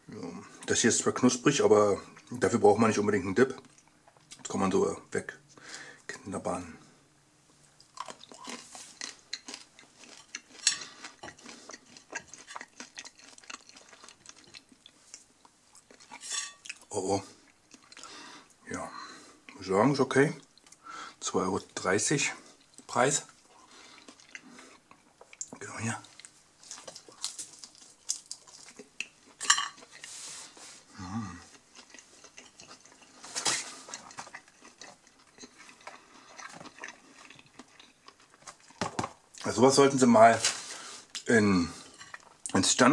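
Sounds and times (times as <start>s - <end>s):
crisp crust being chewed: 7.8s - 18.1s, 22.4s - 30.2s, 30.8s - 39.5s, 40.5s - 42.7s.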